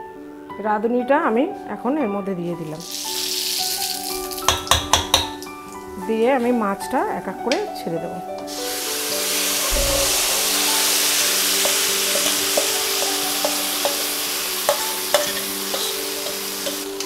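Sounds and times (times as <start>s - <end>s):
fish sizzling in hot oil: 2.8s - 5.5s, 8.5s - 17.0s.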